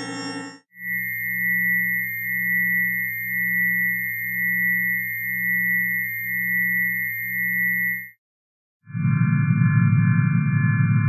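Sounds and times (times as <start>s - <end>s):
low synthesized hum: 0.0s - 8.0s, 8.9s - 11.0s
pulsing sine tone: 0.0s - 8.2s, 8.9s - 11.0s
whistle-like sine tone: 0.0s - 8.2s.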